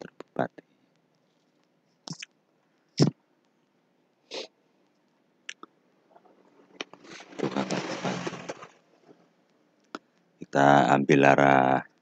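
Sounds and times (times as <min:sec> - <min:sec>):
mouth clicks: 0:02.1 - 0:02.4, 0:05.5 - 0:05.7.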